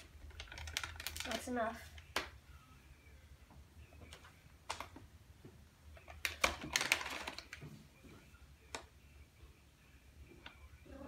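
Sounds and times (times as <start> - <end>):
foil pouch crinkling: 0.3 - 1.6.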